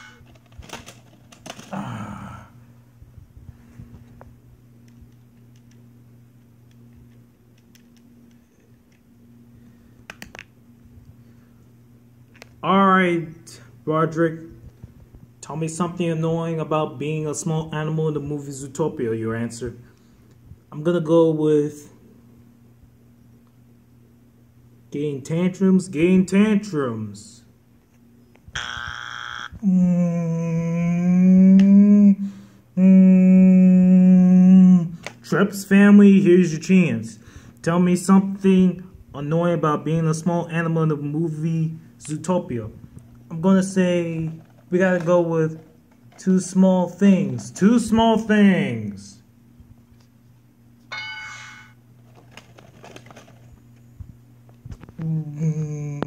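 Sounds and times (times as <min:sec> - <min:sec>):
person imitating a buzzer: 0:00.0 - 0:00.2, 0:28.5 - 0:34.9
low electrical hum: 0:00.0 - 0:56.0.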